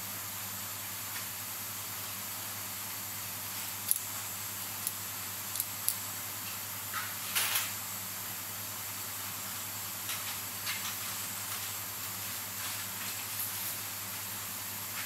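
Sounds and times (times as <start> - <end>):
tweezers clicking on metal: 4.8 - 6.0.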